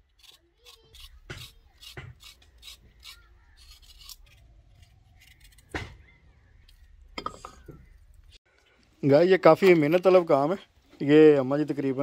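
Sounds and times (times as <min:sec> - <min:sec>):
knife scraping carrot skin: 0:00.1 - 0:05.8.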